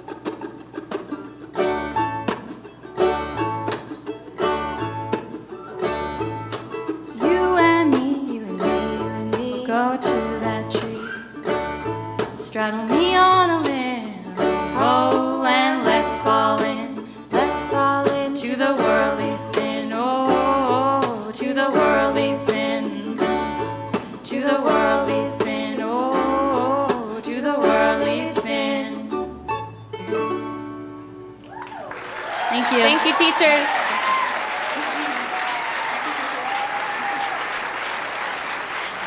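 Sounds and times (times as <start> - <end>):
banjo strumming: 0.0 - 31.4
voices singing: 12.9 - 29.2.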